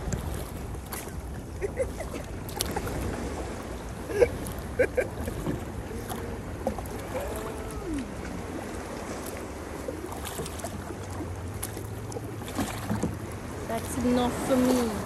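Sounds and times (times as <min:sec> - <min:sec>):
wind on microphone: 0:00.0 - 0:10.5
paddle blades dipping: 0:00.0 - 0:15.0
water lapping and splashing: 0:00.0 - 0:15.0.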